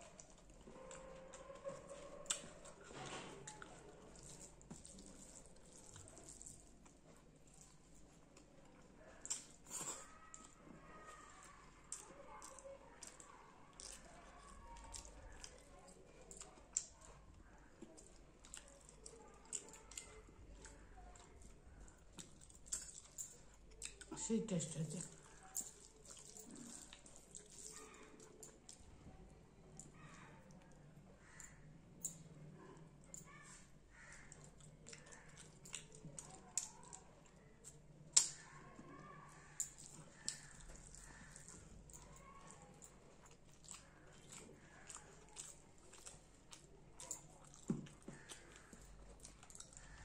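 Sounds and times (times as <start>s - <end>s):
chewing and lip smacks: 0.0s - 10.6s, 11.4s - 24.1s, 24.7s - 28.9s, 29.7s - 50.0s
wet chewing mouth sounds: 39.4s - 50.0s.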